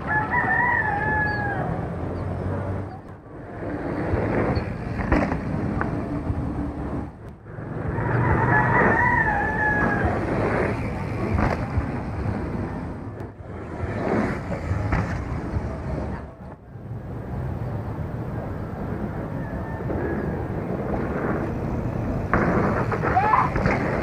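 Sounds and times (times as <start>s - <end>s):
rooster crowing: 0.0s - 1.9s, 7.9s - 10.3s, 19.3s - 20.5s
rough background noise: 0.0s - 24.0s.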